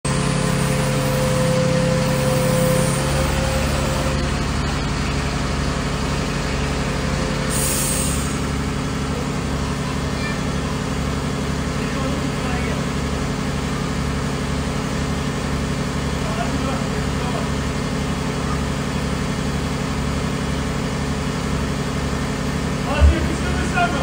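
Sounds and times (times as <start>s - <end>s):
engine running: 0.0s - 24.0s
short hiss: 7.5s - 8.4s.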